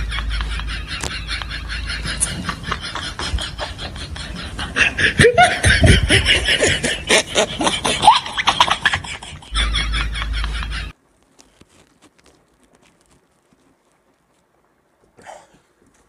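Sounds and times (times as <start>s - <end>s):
people chewing food: 11.0s - 16.0s.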